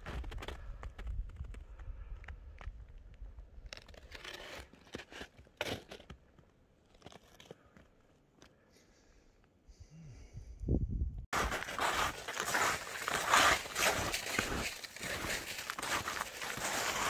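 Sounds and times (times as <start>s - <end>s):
footsteps crunching in snow: 11.3s - 17.0s.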